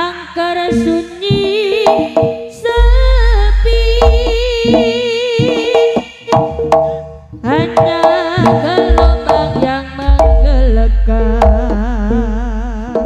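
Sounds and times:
gamelan melody: 0:00.7 - 0:13.0
hand drum strokes: 0:00.8 - 0:13.0
deep gong booms: 0:02.8 - 0:05.3, 0:08.9 - 0:12.0.

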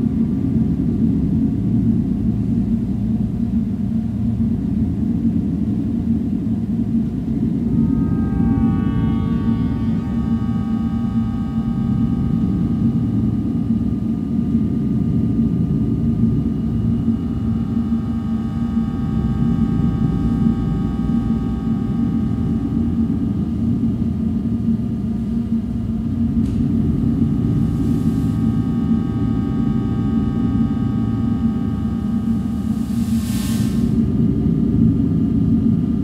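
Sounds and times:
low rumbling electronic drone: 0:00.0 - 0:36.0
thin sustained high tones: 0:07.6 - 0:13.1.

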